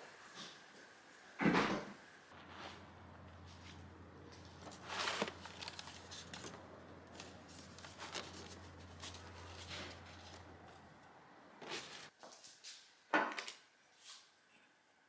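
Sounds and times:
faint rustling: 0:02.3 - 0:12.1
steady low hum: 0:02.3 - 0:12.1.

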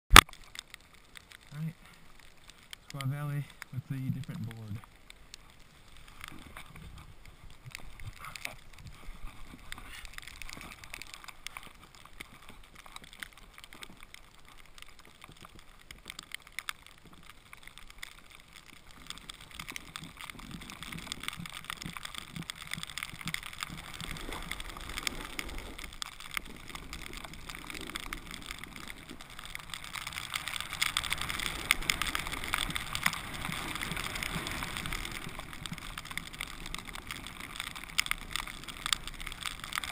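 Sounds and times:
snowboard scraping over snow: 0:23.6 - 0:36.0.

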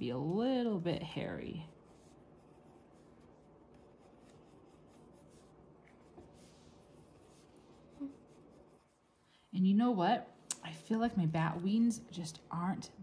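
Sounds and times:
pencil scratching on paper: 0:00.8 - 0:09.0.

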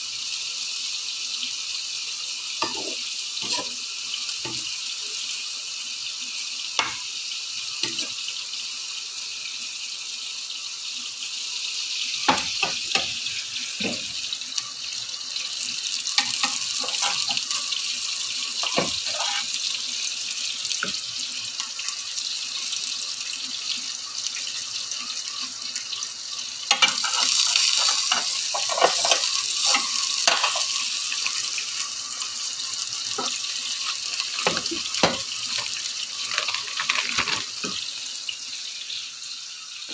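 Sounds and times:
oil sizzling: 0:00.0 - 0:39.9
skimmer and pans clinking: 0:02.6 - 0:03.8, 0:16.2 - 0:17.8, 0:18.5 - 0:19.5, 0:26.7 - 0:31.1, 0:33.1 - 0:37.8.

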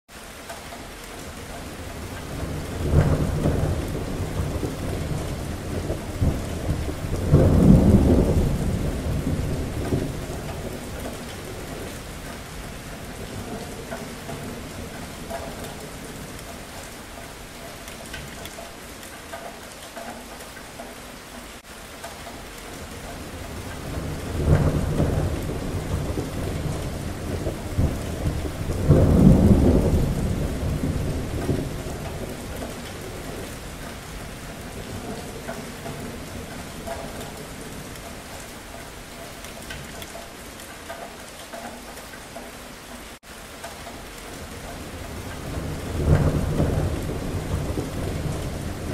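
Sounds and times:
steady rain: 0:00.1 - 0:48.9
rolling thunder: 0:01.8 - 0:16.8, 0:22.8 - 0:38.0, 0:44.8 - 0:48.9.

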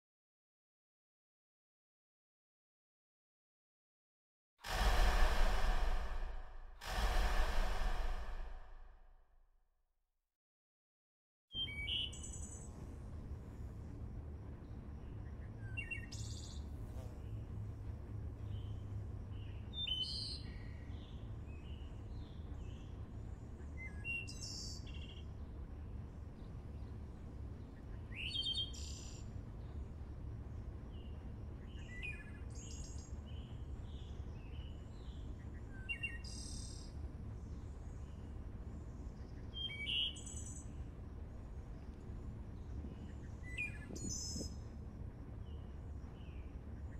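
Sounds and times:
low steady rumble: 0:04.7 - 0:09.3, 0:12.3 - 0:46.9
songbird chirping: 0:18.4 - 0:46.9.

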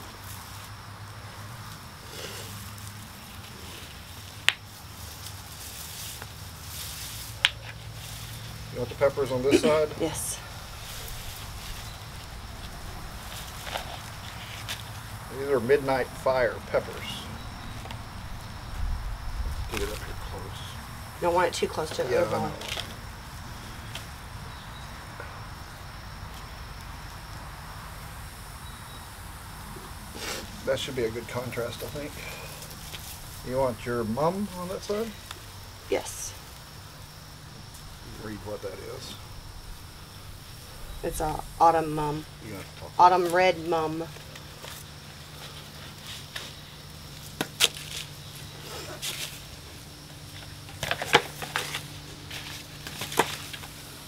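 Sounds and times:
hands rustling foliage: 0:00.0 - 0:28.3, 0:29.1 - 0:54.0
high-pitched insect trill: 0:00.0 - 0:54.0
hands working potting soil: 0:01.6 - 0:18.0, 0:19.6 - 0:23.1, 0:41.0 - 0:54.0
low background rumble: 0:07.3 - 0:22.1, 0:22.8 - 0:43.1.

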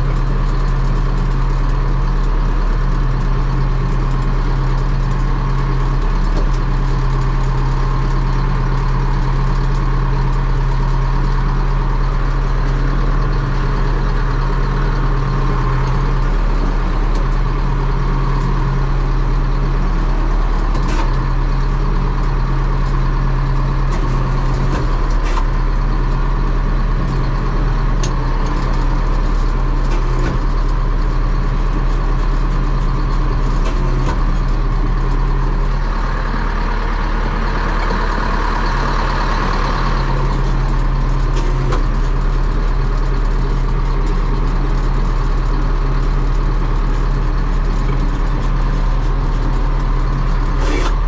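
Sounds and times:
diesel engine running under load: 0:00.0 - 0:51.0.

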